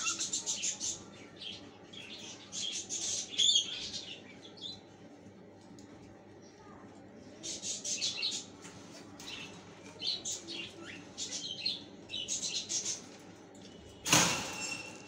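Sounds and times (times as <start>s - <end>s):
lovebirds chirping: 0.0s - 4.8s.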